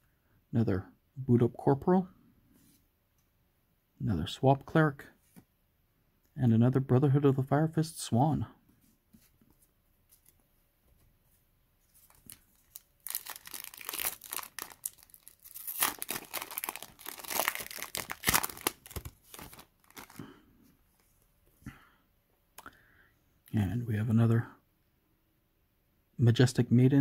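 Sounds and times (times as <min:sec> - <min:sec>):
foil wrapper tearing and crinkling: 0:12.1 - 0:20.2.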